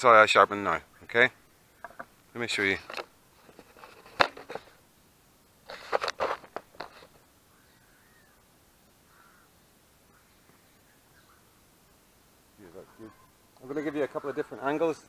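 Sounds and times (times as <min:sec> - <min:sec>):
camera handling knocks: 0:01.8 - 0:02.1
harsh scraping knocks: 0:01.8 - 0:02.1.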